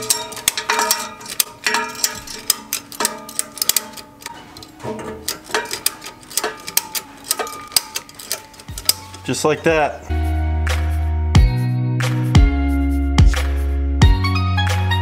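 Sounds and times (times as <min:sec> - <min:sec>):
ratchet strap clicking: 0:00.0 - 0:09.4
background music: 0:05.7 - 0:15.0.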